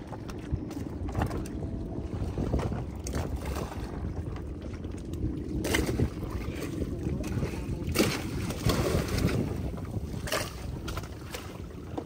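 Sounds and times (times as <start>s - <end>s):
boat hull and water rumble: 0.0s - 12.0s
rush of water: 0.0s - 12.0s.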